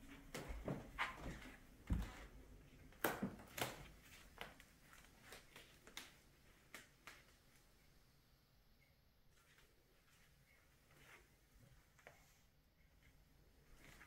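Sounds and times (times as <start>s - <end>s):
footsteps on hardwood floor: 0.0s - 2.4s.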